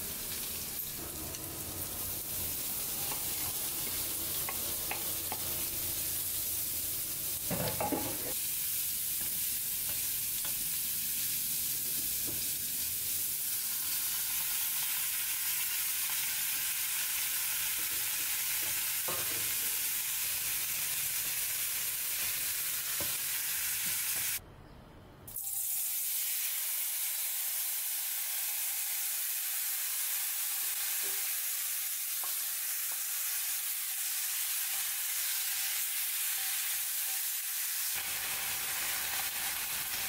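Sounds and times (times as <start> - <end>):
food sizzling in a frying pan: 0.0 - 24.4, 25.4 - 40.0
wooden spatula knocking pan: 7.5 - 8.3.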